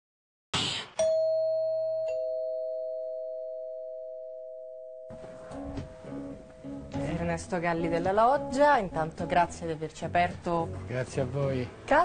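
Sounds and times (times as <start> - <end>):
two-tone doorbell chime: 1.0 - 6.9.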